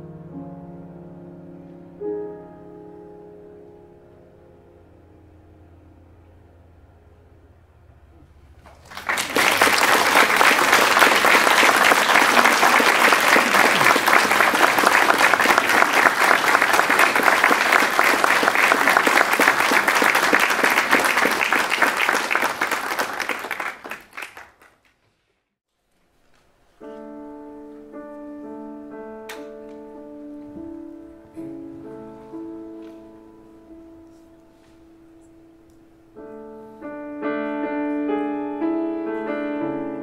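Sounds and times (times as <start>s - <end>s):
grand piano chords: 0.0s - 23.9s, 26.7s - 40.0s
audience applauding: 8.6s - 25.0s.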